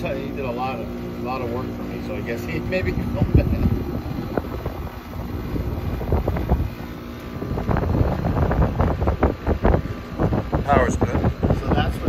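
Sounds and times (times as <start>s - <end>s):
air conditioner unit humming: 0.0s - 12.0s
fan blowing air: 0.0s - 12.0s
wind noise on microphone: 2.5s - 12.0s.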